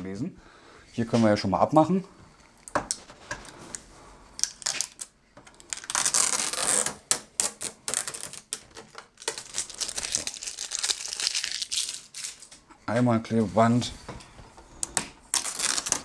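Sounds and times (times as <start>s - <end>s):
packing tape ripping off plastic: 4.4s - 12.5s, 14.8s - 16.0s.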